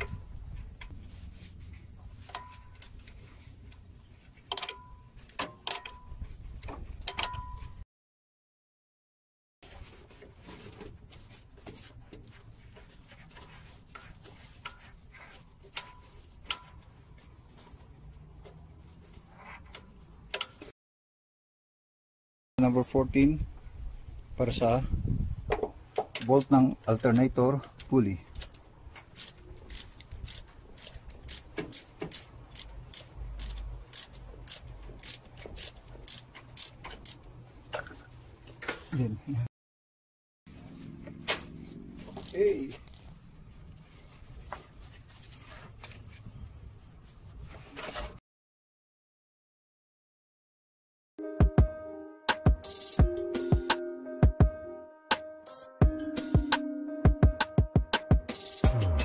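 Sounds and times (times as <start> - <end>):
hand tools clicking and tapping: 25.6 - 38.0.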